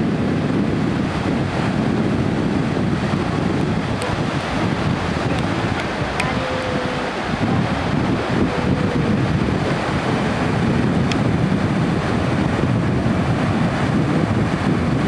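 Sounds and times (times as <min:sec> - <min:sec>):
surf breaking on beach: 0:00.0 - 0:15.0
wind buffeting microphone: 0:00.0 - 0:15.0.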